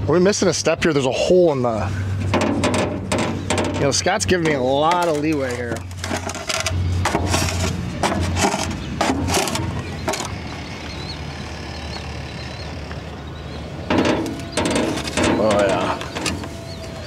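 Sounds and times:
steady low hum: 0.0s - 17.0s
plastic shovel scraping concrete: 4.5s - 10.3s.

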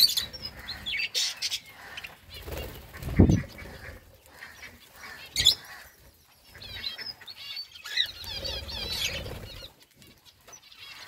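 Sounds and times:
budgerigars chirping: 0.0s - 9.7s
wings flapping: 1.8s - 5.8s, 8.1s - 10.1s.

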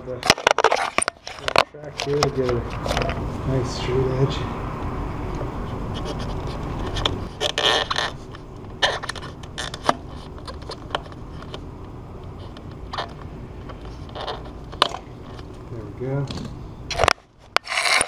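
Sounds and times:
clicks and scrapes: 0.1s - 3.2s, 5.9s - 11.6s, 16.3s - 18.0s
crunching cuts of weather strip: 16.9s - 18.0s.

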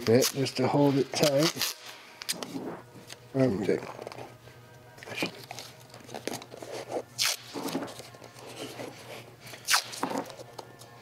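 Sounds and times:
tape ripping off roll: 7.2s - 8.0s, 9.6s - 10.4s.

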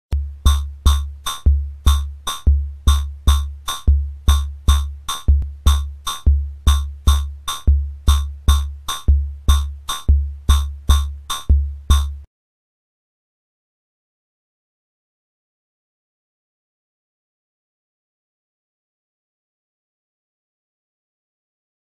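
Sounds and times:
synthesized drum beat: 0.1s - 12.3s.

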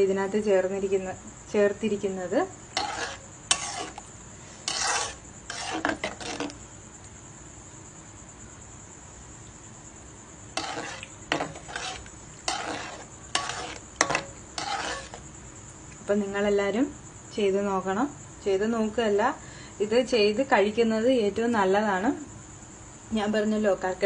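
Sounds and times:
spoon scraping a metal pot: 2.7s - 6.6s, 10.6s - 15.2s.

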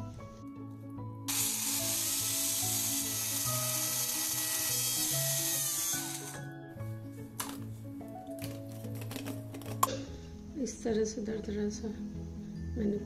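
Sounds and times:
electric grinder motor grinding: 1.3s - 6.5s.

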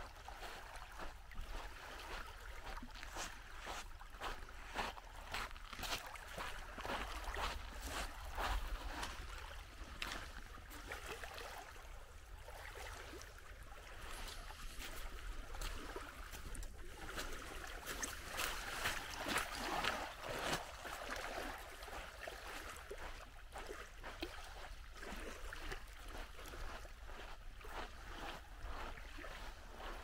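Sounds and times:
small waves lapping on stones: 4.5s - 26.8s.

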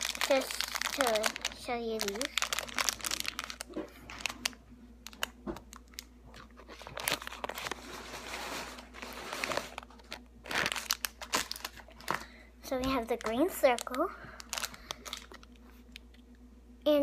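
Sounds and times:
plastic bag crinkling: 0.0s - 16.2s.

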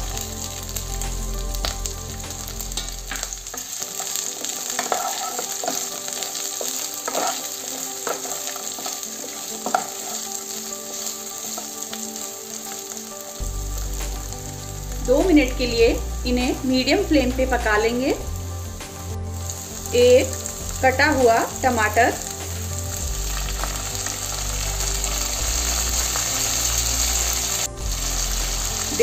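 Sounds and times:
vegetables sizzling in hot oil: 0.0s - 29.0s
wooden spatula scraping pan: 3.2s - 10.4s.

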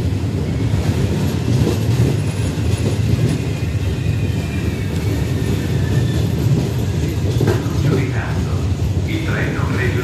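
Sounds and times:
train wheels rumbling on rails: 0.0s - 10.0s
high brake squeal: 3.4s - 7.0s.

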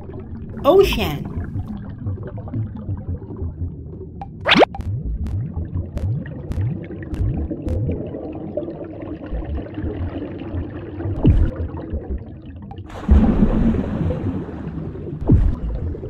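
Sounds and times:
underwater bubbling and gurgling: 0.0s - 16.0s
small bubble pops: 4.2s - 8.2s.

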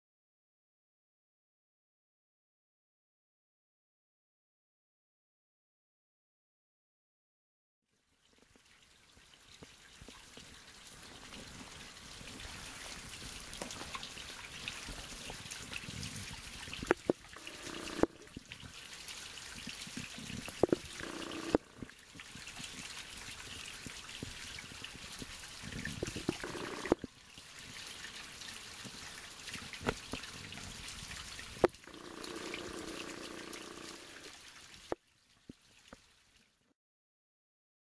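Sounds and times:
water trickling into puddle: 7.9s - 36.7s.

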